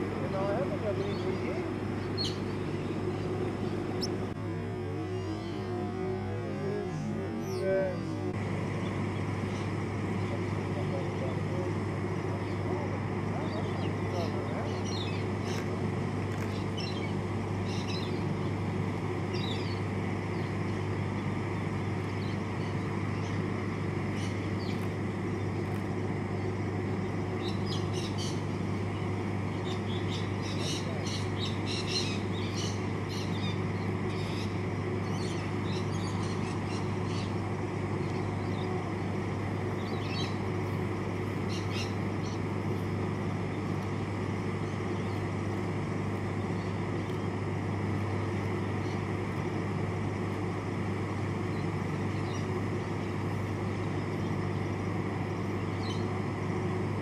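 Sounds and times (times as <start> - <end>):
low hum: 0.0 - 57.0
bird chirping: 1.0 - 4.3.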